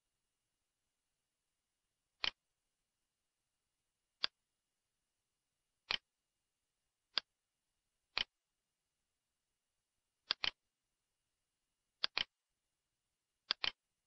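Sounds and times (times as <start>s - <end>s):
computer mouse clicks: 2.2s - 2.4s, 5.8s - 6.1s, 8.1s - 8.3s, 10.2s - 10.6s, 12.0s - 12.3s, 13.5s - 13.8s.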